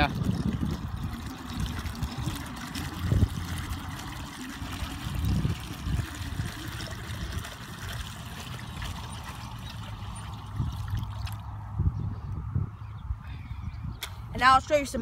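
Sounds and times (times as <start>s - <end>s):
water bubbling and splashing: 0.0s - 11.5s
wind rumble on microphone: 0.0s - 15.0s.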